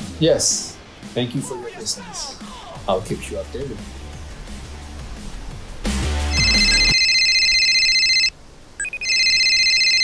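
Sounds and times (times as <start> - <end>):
mobile phone ringing: 6.3 - 10.0.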